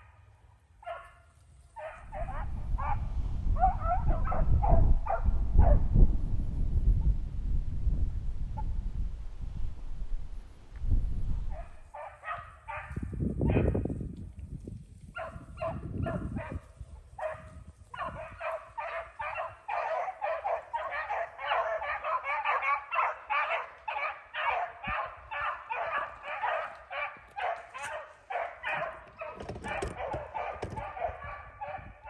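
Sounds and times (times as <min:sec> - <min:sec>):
dog barks: 0:00.8 - 0:03.0, 0:03.6 - 0:05.9, 0:11.5 - 0:13.8, 0:15.2 - 0:32.0
wind rush on microphone: 0:02.0 - 0:19.8, 0:24.8 - 0:25.5, 0:28.6 - 0:32.0
dogs baying: 0:17.2 - 0:31.9.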